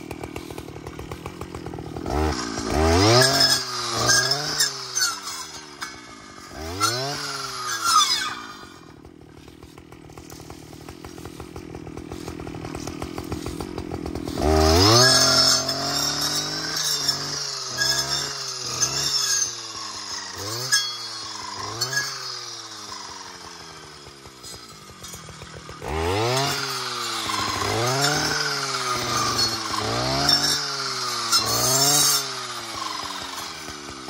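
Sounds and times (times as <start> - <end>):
brush cutter engine revving: 0.0 - 34.0.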